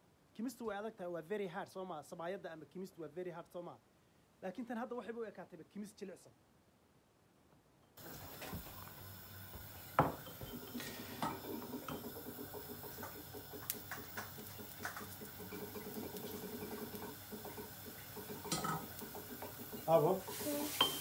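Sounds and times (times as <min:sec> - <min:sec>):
spoon clinking on bowl: 0:09.9 - 0:12.0, 0:20.8 - 0:21.0
spoon knocking steel bowl: 0:20.8 - 0:21.0.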